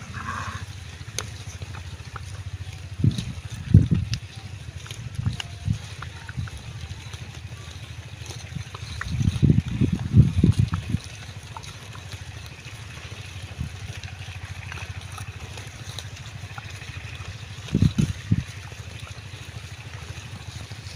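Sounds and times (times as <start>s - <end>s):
faint crunching ticks: 0.0s - 20.9s
low pulsing rumble: 0.0s - 20.9s.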